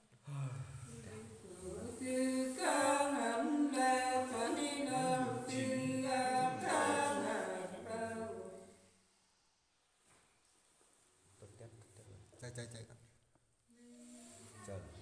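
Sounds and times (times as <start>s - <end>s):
person singing unaccompanied: 1.1s - 8.7s.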